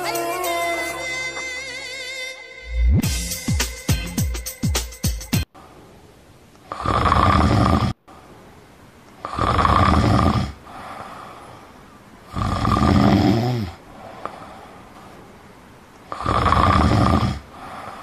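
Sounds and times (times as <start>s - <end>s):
quiet breathing: 5.5s - 18.0s
man snoring: 6.7s - 8.0s, 9.2s - 11.0s, 12.3s - 14.4s, 16.1s - 18.0s.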